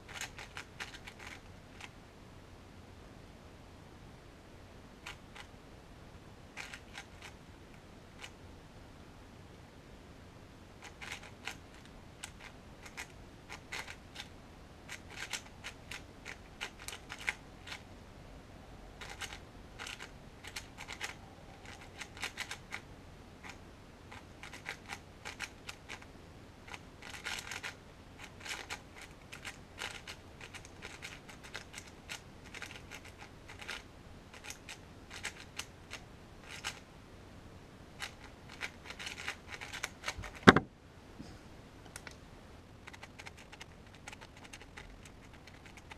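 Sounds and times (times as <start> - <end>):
puzzle cube plastic clicks: 0.1 - 1.9, 6.6 - 7.4, 10.8 - 14.3, 14.9 - 17.8, 19.0 - 22.8, 23.4 - 26.0, 26.7 - 36.8, 38.0 - 40.7, 42.8 - 45.9.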